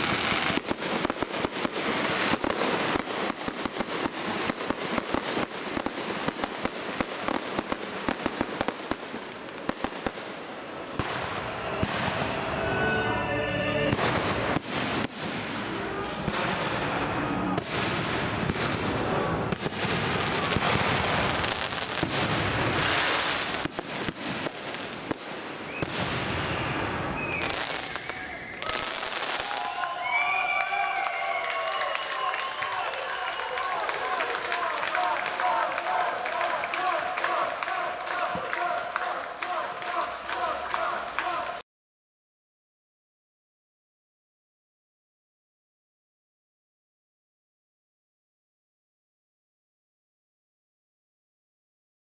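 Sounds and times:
fireworks bangs: 0.0 - 12.7, 13.9 - 31.2
fireworks crackling bursts: 0.0 - 12.7, 13.9 - 41.6
rumble of fireworks display: 0.0 - 12.8, 13.9 - 31.2
onlookers' voices: 32.6 - 41.6.

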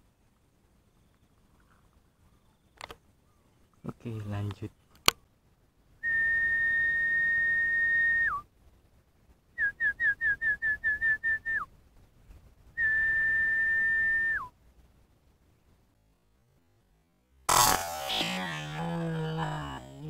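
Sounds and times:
person whistling: 6.0 - 8.4, 12.8 - 14.5.

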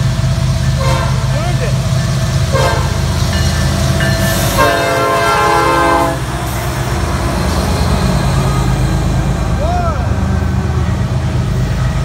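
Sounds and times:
diesel locomotives rumbling past: 0.0 - 12.0
locomotive air horn blast: 0.8 - 1.3, 2.5 - 3.0, 4.6 - 6.4.

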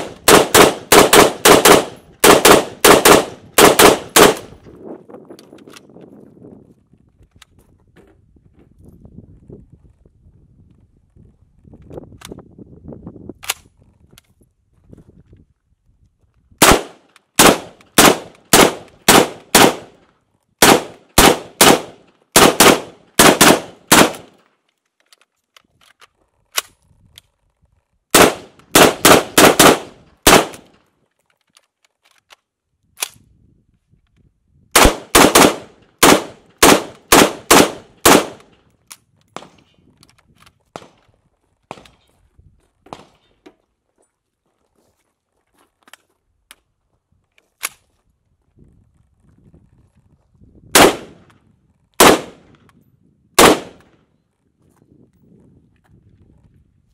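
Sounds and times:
rifle shots: 0.0 - 4.6, 16.6 - 20.0, 20.6 - 24.4, 28.1 - 30.8, 34.8 - 38.5, 50.7 - 51.3, 52.0 - 52.6, 53.4 - 54.0.

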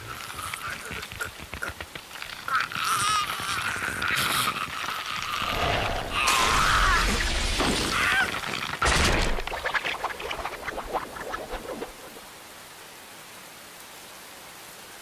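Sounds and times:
sharp cracking crashes: 5.4 - 9.7.

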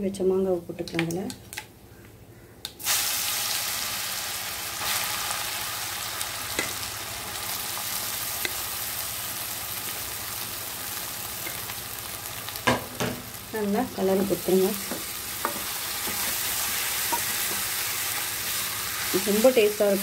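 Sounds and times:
food sizzling in hot oil: 2.8 - 20.0.

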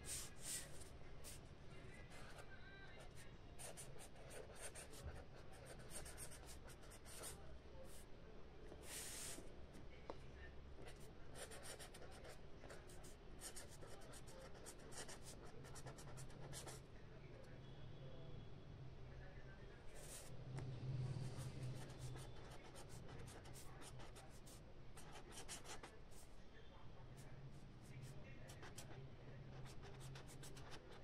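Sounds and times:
pen scratching on paper: 0.0 - 1.4, 3.6 - 7.4, 10.9 - 16.8, 21.3 - 25.9, 28.5 - 31.0.

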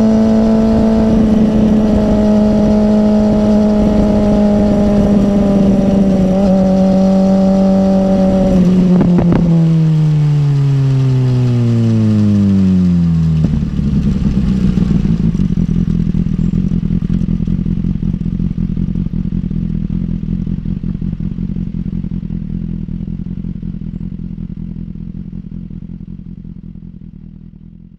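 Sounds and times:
motorcycle engine idling: 12.0 - 27.9.

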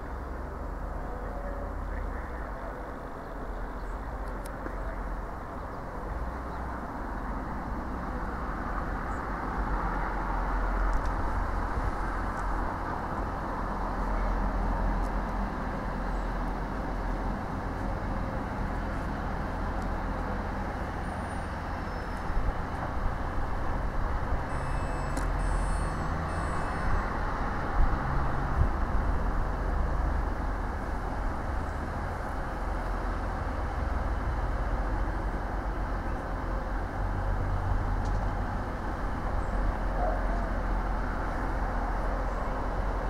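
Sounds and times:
diesel train engine and wheel rumble: 0.0 - 43.0
high-pitched squeaks: 24.5 - 27.0.

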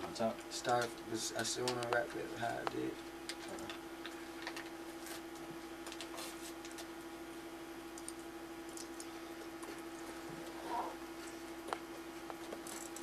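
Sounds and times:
electrical hum: 0.0 - 13.0
computer keyboard clicks: 12.6 - 13.0.

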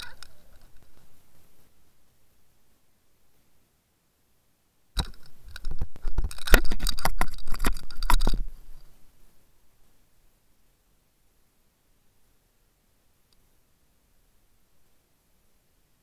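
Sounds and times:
knocks and scrapes on camera housing: 5.0 - 8.6.

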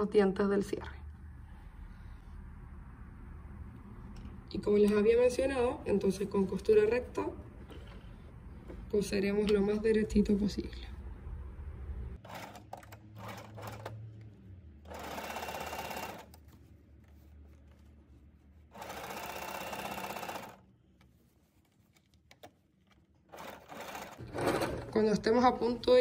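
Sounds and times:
sewing machine stitching: 12.2 - 14.0, 14.9 - 16.3, 18.7 - 20.6, 23.3 - 25.0.

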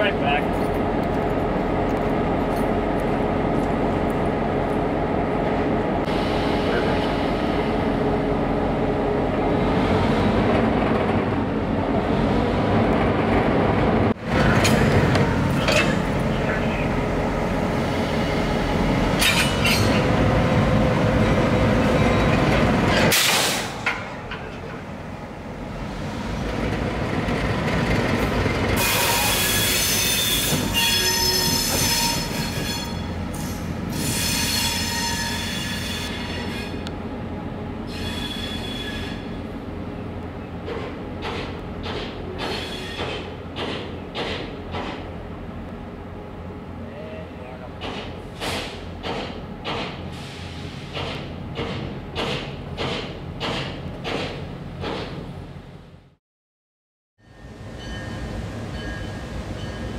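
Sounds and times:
steel wheels squealing on rails: 28.8 - 36.9, 37.8 - 39.4, 41.9 - 44.5, 50.0 - 51.9, 57.2 - 59.9.

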